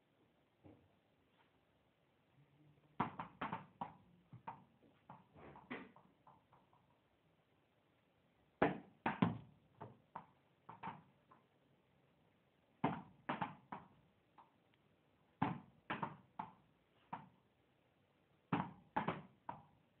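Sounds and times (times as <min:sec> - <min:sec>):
ball bouncing hard indoors: 0:03.0 - 0:06.9, 0:08.6 - 0:11.5, 0:12.8 - 0:14.6, 0:15.4 - 0:17.4, 0:18.5 - 0:19.8.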